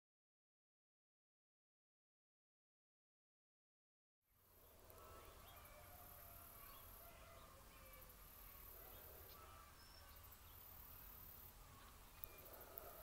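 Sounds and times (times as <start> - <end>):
faint chickens calling: 4.7 - 13.0.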